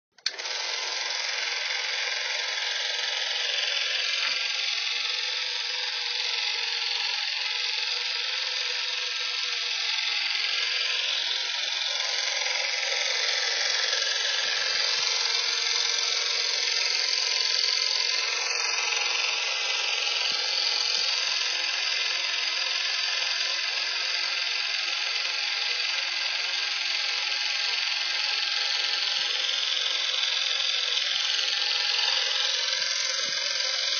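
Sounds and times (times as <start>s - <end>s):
film projector running: 0.1s - 33.9s.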